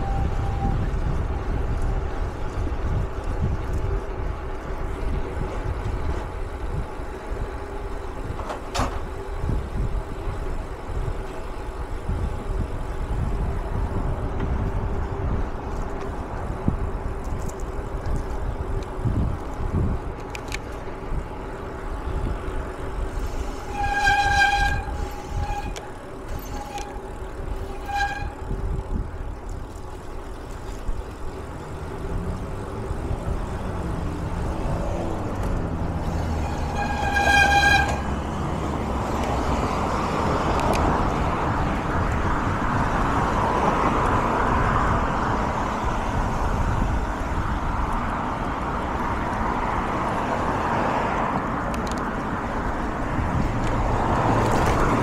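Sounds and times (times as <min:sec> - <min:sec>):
vehicle horn: 0:00.0 - 0:00.9, 0:23.3 - 0:28.6, 0:36.1 - 0:38.4
vehicle rumble: 0:00.0 - 0:55.0.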